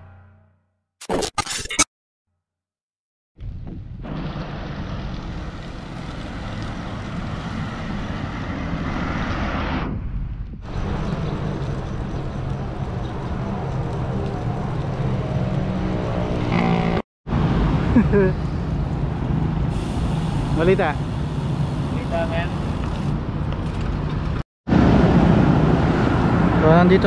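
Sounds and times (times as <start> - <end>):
road noise: 4.0 - 27.0
wind buffeting microphone: 9.9 - 15.4.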